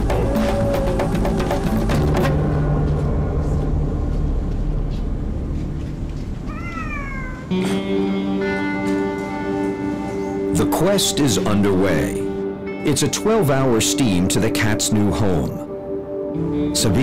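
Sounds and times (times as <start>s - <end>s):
background music: 0.0s - 6.5s, 7.4s - 17.0s
small wild cat meowing: 6.5s - 7.6s.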